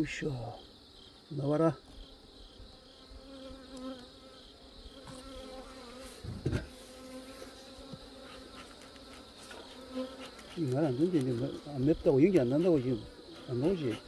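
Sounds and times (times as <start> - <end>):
honeybees buzzing: 0.0 - 14.0
thump: 6.2 - 6.7.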